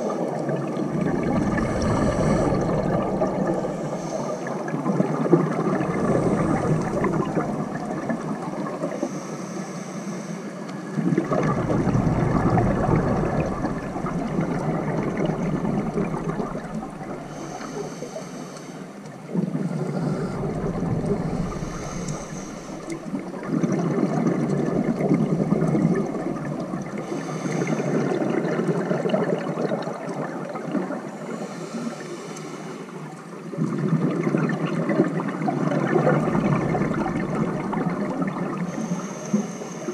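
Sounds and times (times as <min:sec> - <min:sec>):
exhaled bubbles gurgling: 0:00.0 - 0:09.7, 0:10.5 - 0:32.2, 0:32.8 - 0:39.9
regulator inhalation hiss: 0:03.5 - 0:04.7, 0:17.2 - 0:19.0, 0:19.6 - 0:23.2, 0:27.0 - 0:28.1.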